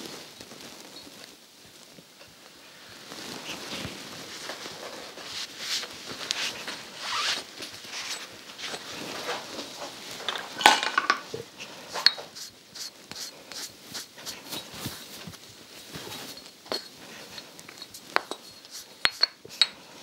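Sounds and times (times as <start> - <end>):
cloth rubbing steel blade: 5.8 - 8.8.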